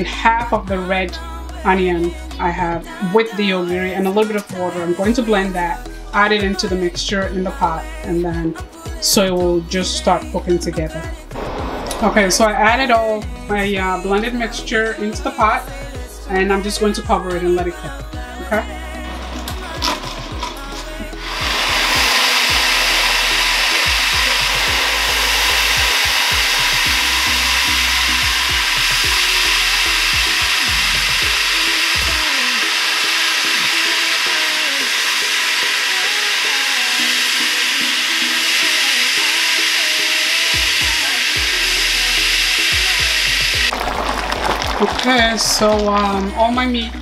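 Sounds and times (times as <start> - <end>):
food processor motor running: 19.0 - 45.9.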